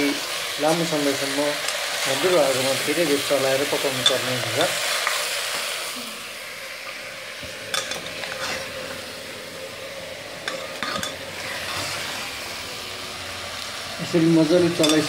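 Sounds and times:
meat sizzling in oil: 0.0 - 15.0
spoon scraping and knocking pot: 10.4 - 11.2.

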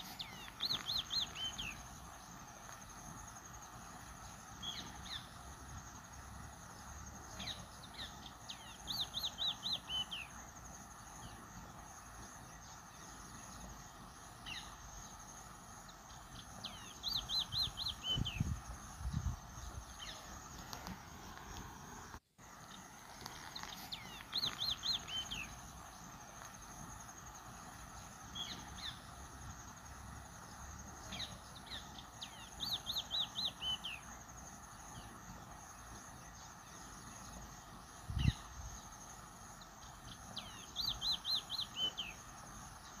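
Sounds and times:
high insect drone: 0.0 - 43.0
songbird singing: 0.0 - 43.0.

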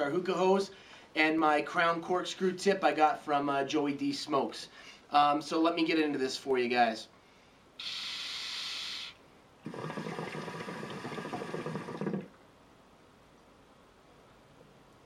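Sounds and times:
hiss of air: 7.8 - 9.2
water bubbling in hookah: 7.8 - 12.4.

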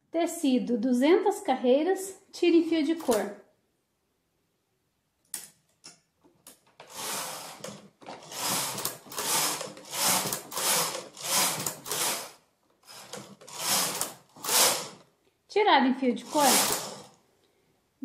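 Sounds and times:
knitting machine carriage sliding: 6.5 - 15.1, 16.2 - 17.2
knitting machine clicks: 6.8 - 15.0, 16.3 - 17.1.

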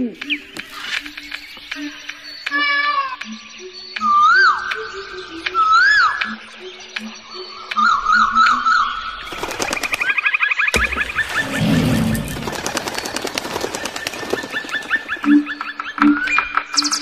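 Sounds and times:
birds chirping: 0.0 - 17.0
rustling: 10.8 - 15.3.

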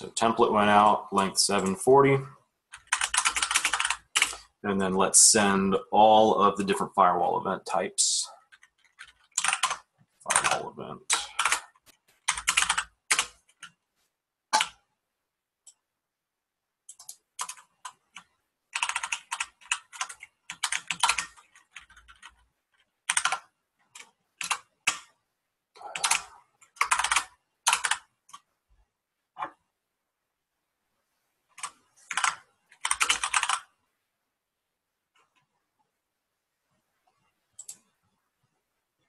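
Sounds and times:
typing on computer keyboard: 2.7 - 4.5, 8.4 - 13.8, 14.6 - 14.8, 16.9 - 25.1, 25.8 - 28.5, 31.6 - 33.7, 37.6 - 37.9.

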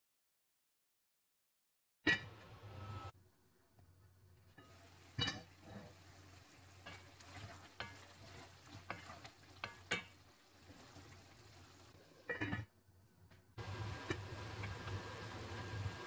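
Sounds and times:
low sizzle: 2.6 - 16.0
spatula scraping a pan: 4.6 - 11.2.

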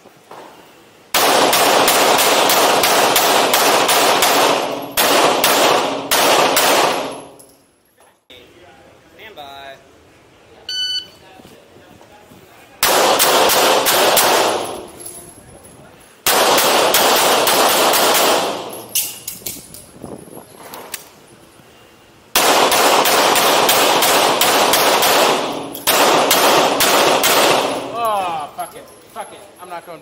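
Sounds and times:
pistol shots echoing indoors: 1.1 - 7.5, 12.8 - 15.0, 16.2 - 19.2, 22.3 - 28.0.

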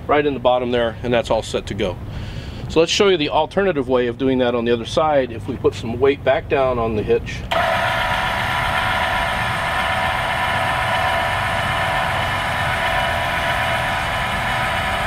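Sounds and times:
electric jack motor running: 7.5 - 15.0.

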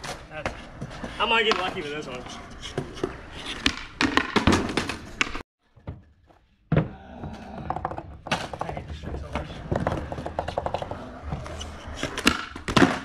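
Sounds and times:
skateboard wheels rolling: 0.0 - 5.4, 7.6 - 13.0
skateboard popping and landing: 2.5 - 5.4, 7.5 - 13.0.

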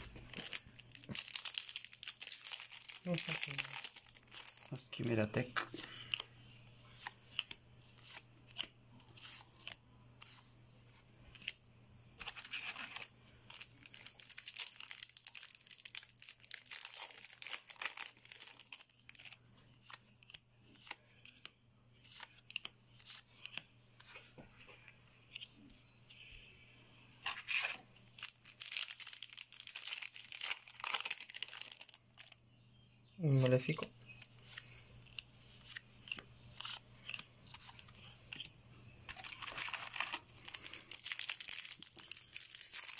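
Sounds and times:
foil pack crinkling and tearing: 0.0 - 5.3, 12.2 - 19.4, 27.3 - 32.4, 39.1 - 42.9
trading cards clicking and rustling: 6.9 - 11.6, 12.2 - 25.6, 33.3 - 42.9.

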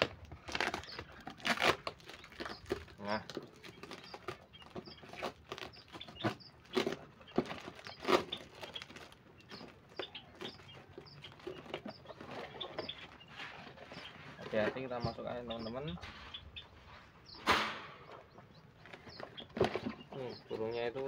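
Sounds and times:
plastic wrapping crinkling: 0.0 - 10.4
small birds chirping: 0.0 - 21.0.

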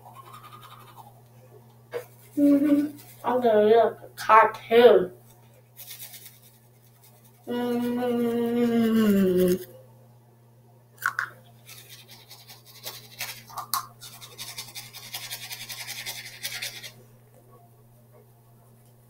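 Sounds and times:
toothbrush scrubbing teeth: 0.0 - 1.2, 2.0 - 3.3, 5.8 - 9.7, 11.6 - 17.0.

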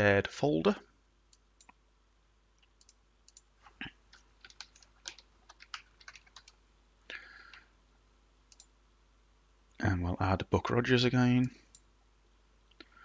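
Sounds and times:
typing on computer keyboard: 4.1 - 6.6.

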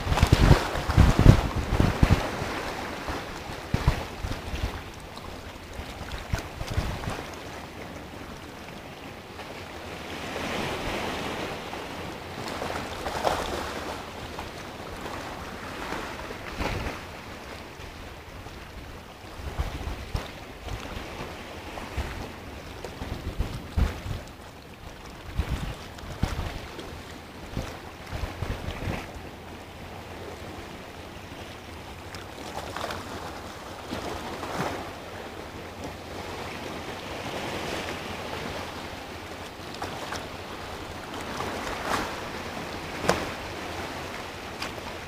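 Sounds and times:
wind buffeting microphone: 0.0 - 5.0, 5.8 - 7.3, 18.8 - 24.4, 25.2 - 29.2
sea waves breaking against rock: 0.0 - 45.0.

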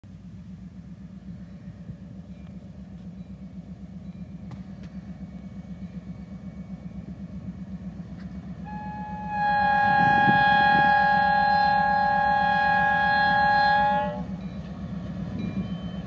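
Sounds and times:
diesel locomotive engine rumble: 0.0 - 16.0
locomotive air horn: 8.6 - 14.4.

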